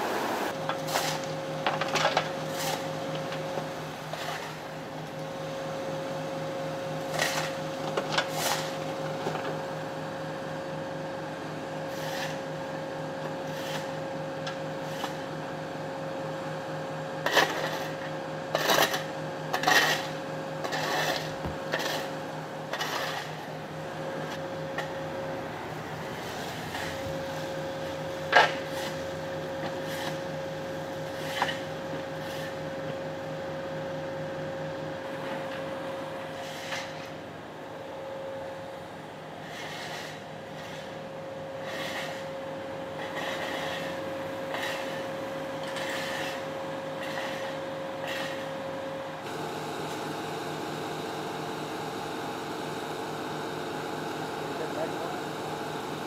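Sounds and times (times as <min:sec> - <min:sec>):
steady mechanical hum: 0:00.0 - 0:56.0.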